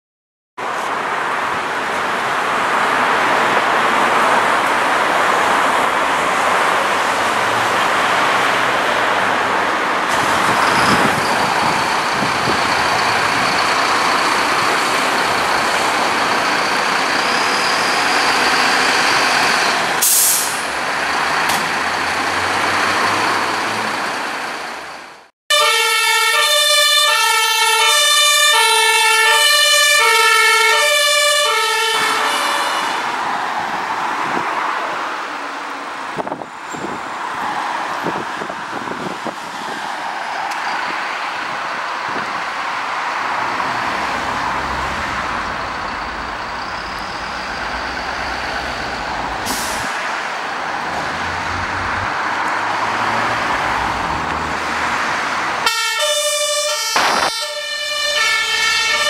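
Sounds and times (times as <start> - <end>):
diesel engines running: 0.7 - 33.3, 40.5 - 59.0
short air hiss: 20.0 - 20.6, 49.4 - 50.0
two-tone siren: 25.5 - 33.1, 55.6 - 59.0.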